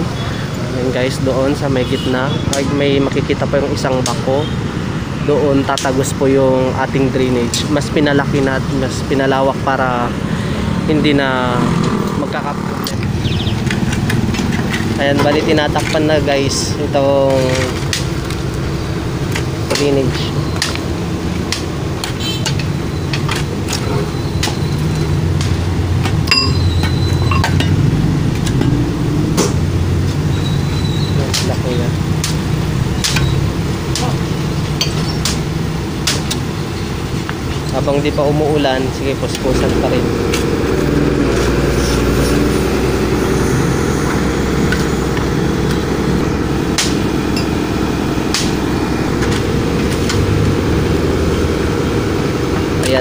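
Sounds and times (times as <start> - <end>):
road traffic rumble: 0.0 - 53.0
ringing metal clink: 26.3 - 27.9.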